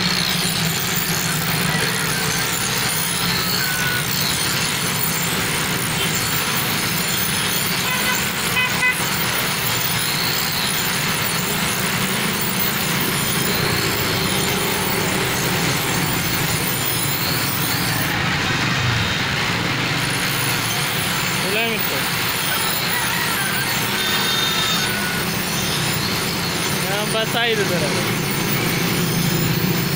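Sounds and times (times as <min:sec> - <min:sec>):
vehicle horn toot: 0:07.8 - 0:09.2, 0:23.9 - 0:25.2
knife on grinding wheel: 0:09.5 - 0:18.2.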